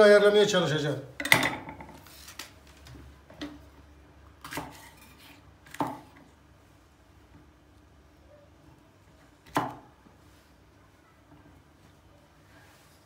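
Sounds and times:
knife chopping on wooden board: 0:09.4 - 0:09.9.

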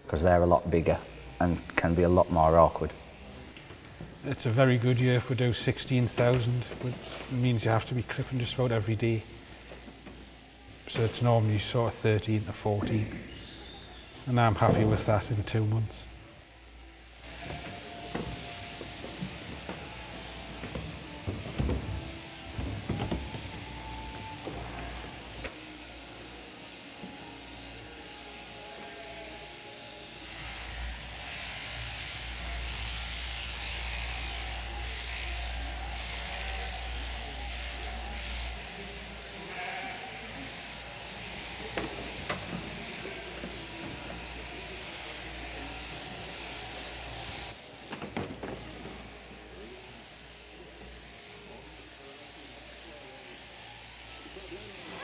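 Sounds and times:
electric shears buzzing: 0:00.2 - 0:55.0
sheep bleating: 0:17.2 - 0:25.4, 0:28.5 - 0:29.5, 0:39.4 - 0:40.7.

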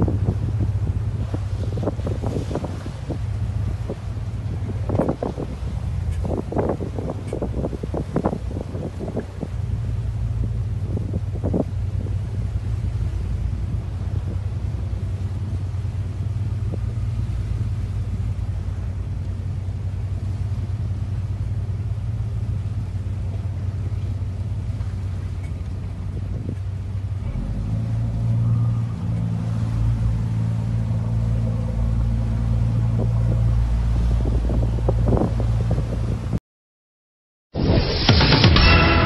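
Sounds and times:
motorboat engine humming: 0:00.0 - 0:36.4, 0:37.6 - 0:39.0.

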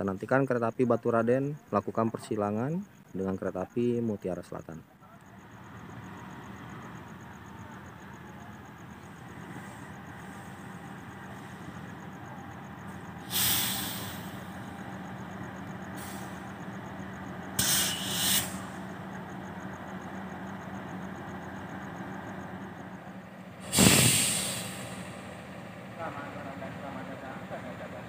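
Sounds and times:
locomotive engine humming: 0:04.8 - 0:28.0
air brakes hissing: 0:08.0 - 0:26.0.

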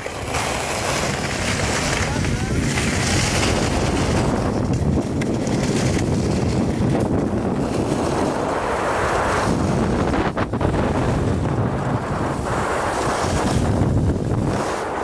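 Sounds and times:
skis sliding over snow: 0:00.0 - 0:15.0
wind buffeting microphone: 0:00.0 - 0:15.0.

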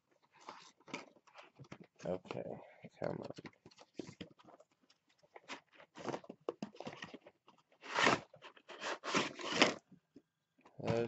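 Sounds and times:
cardboard rustling and scraping: 0:03.5 - 0:09.8.

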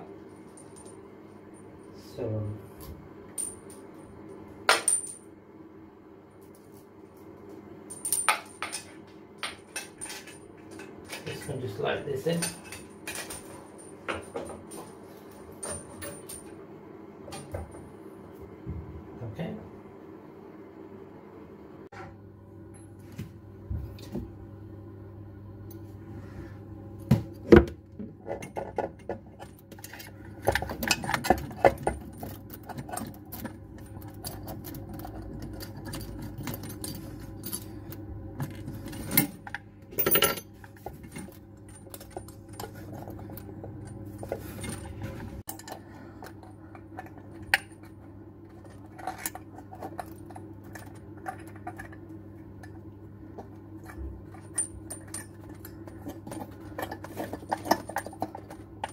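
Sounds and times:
spanner clinking on metal: 0:29.8 - 0:44.9.

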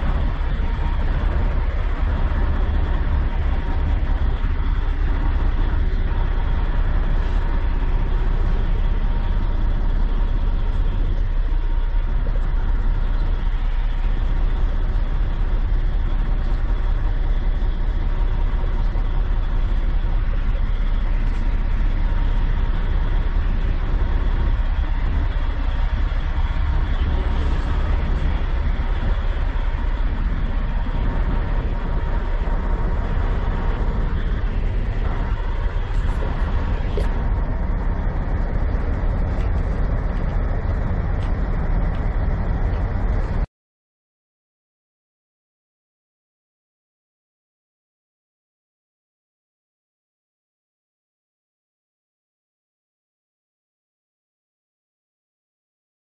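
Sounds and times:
diesel truck engine idling: 0:00.0 - 0:43.5.

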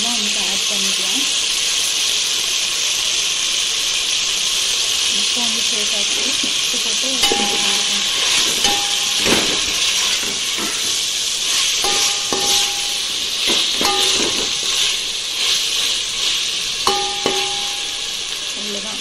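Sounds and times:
onions sizzling in hot oil: 0:00.0 - 0:19.0
metal ladle scraping and clinking pot: 0:07.2 - 0:18.4.

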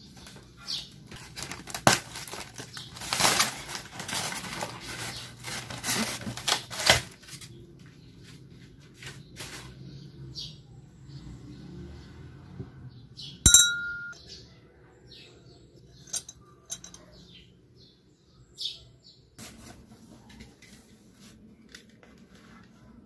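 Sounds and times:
glass cup clinking: 0:13.5 - 0:14.2.

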